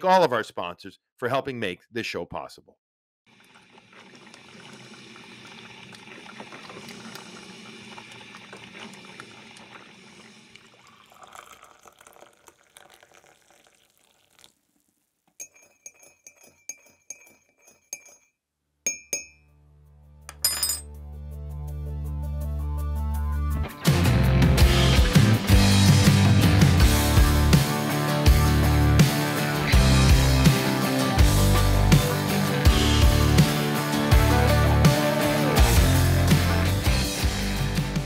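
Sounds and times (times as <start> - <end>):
liquid pouring into a mug: 3.3 - 15.6
light ringing clinks: 15.4 - 18.3.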